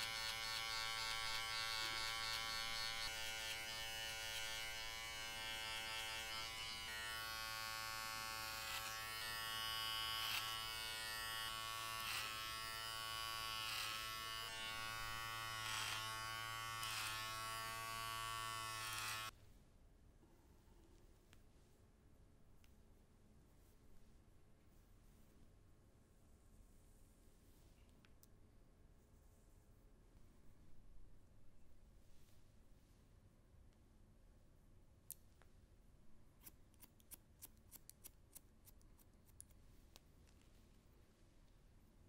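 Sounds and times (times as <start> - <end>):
electric hair clippers buzzing: 0.0 - 19.3.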